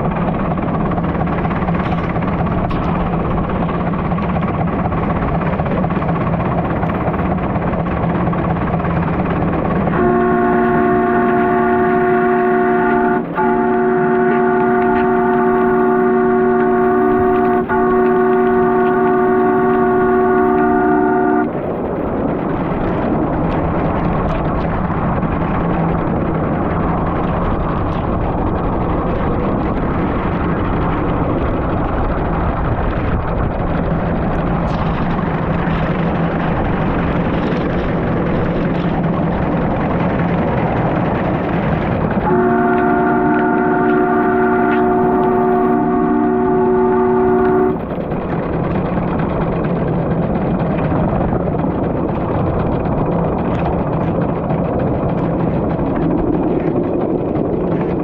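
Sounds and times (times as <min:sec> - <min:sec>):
steady rushing noise: 0:00.0 - 0:58.0
steam locomotive chime whistle: 0:09.9 - 0:21.5, 0:42.2 - 0:47.8.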